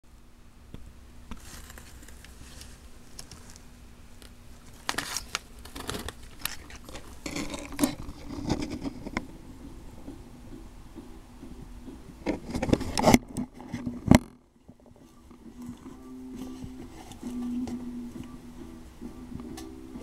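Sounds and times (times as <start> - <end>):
plastic container crinkling: 1.3 - 9.2.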